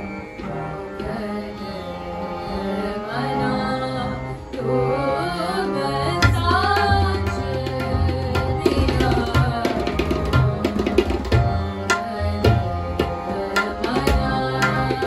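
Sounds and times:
harmonium tones: 0:00.0 - 0:15.0
women singing: 0:00.6 - 0:15.0
tabla drumming: 0:06.0 - 0:15.0.

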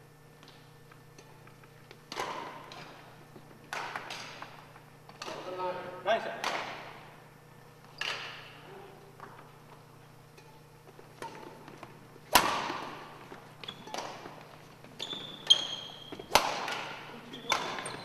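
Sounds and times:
rackets hitting shuttlecock: 0:00.4 - 0:05.7, 0:06.3 - 0:07.2, 0:07.9 - 0:18.0
sneaker squeak on wooden floor: 0:07.9 - 0:08.5, 0:13.6 - 0:16.3, 0:17.3 - 0:18.0.

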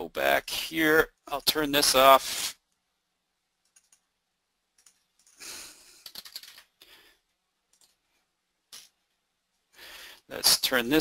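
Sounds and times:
keyboard and mouse clicks: 0:03.6 - 0:04.1, 0:04.7 - 0:05.4, 0:06.0 - 0:06.7, 0:07.7 - 0:08.0
faint breathing: 0:05.3 - 0:06.1, 0:06.8 - 0:07.3, 0:09.7 - 0:10.3.

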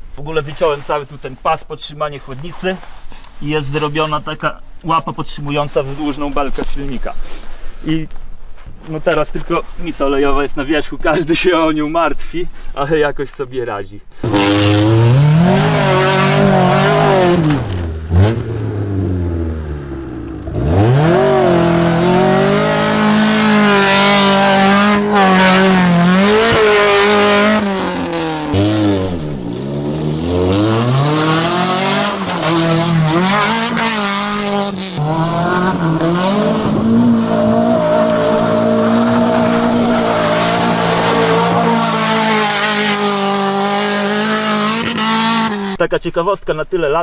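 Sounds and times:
car engine revving hard: 0:14.2 - 0:45.8.

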